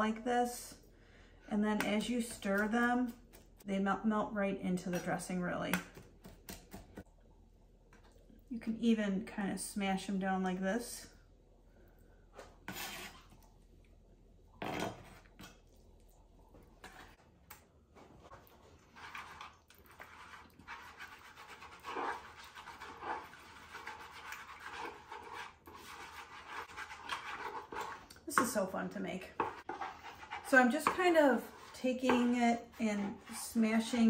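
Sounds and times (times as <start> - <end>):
fork scraping wooden bowl: 12.6 - 13.5, 18.3 - 28.6, 29.2 - 34.0.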